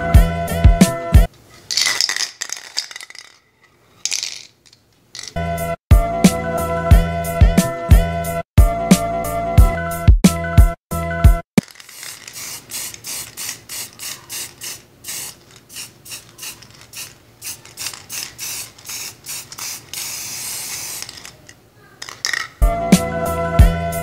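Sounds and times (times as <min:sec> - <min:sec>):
spray can hissing: 0:01.6 - 0:03.4, 0:05.2 - 0:05.4, 0:11.6 - 0:22.5.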